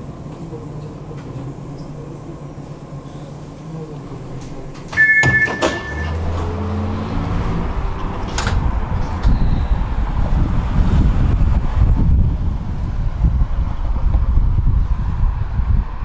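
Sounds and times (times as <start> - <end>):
door clack: 4.4 - 6.6, 8.0 - 9.4
door locks clunking: 4.4 - 6.6, 7.9 - 9.4
tram door beep: 4.5 - 6.8
wind on microphone: 6.9 - 16.0.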